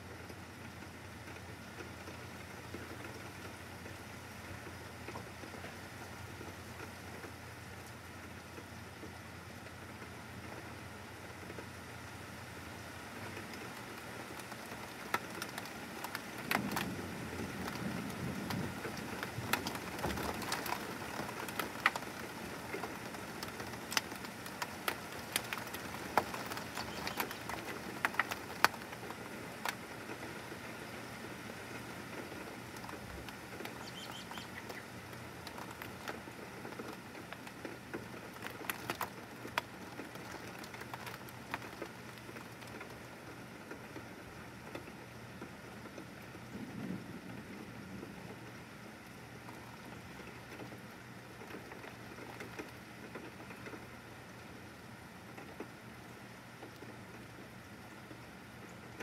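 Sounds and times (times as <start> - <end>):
heavy rain falling: 0.0 - 59.0
drops ticking: 32.8 - 37.6.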